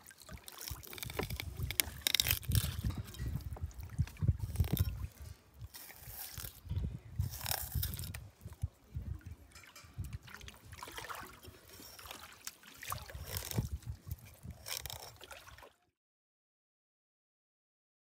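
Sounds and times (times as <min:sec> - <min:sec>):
knife scraping fish bones: 0:00.6 - 0:03.1, 0:05.7 - 0:06.6, 0:07.2 - 0:08.2.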